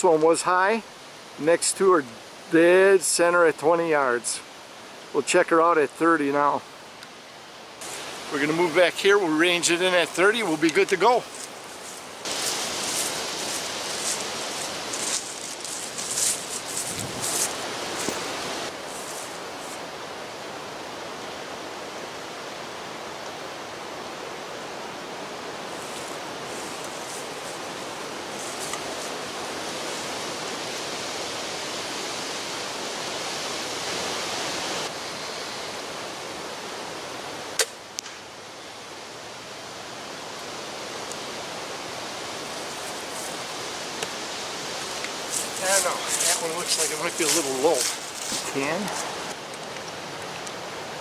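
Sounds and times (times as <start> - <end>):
gear rustling: 11.3 - 18.2
wind noise on microphone: 15.9 - 18.7
crossbow shot: 37.6 - 38.2.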